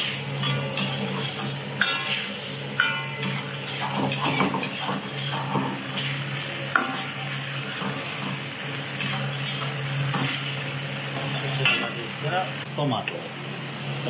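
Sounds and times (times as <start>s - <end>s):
ladle scraping a sizzling wok: 0.0s - 12.0s
food sizzling in a wok: 0.0s - 12.7s
ladle clanging against wok: 0.4s - 5.8s, 6.7s - 7.2s.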